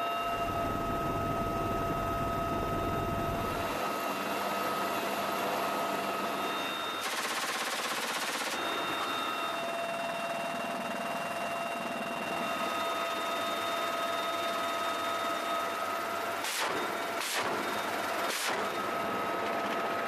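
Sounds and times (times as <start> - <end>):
helicopter turbine whine: 0.0 - 20.0
machine-gun fire: 7.0 - 8.6.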